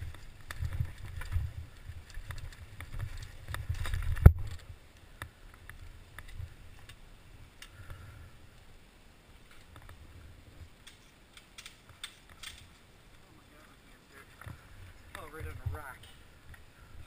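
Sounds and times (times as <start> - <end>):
bike rolling over rocky trail: 0.0 - 7.1
light clicks and rattles: 0.0 - 8.0, 10.6 - 13.2.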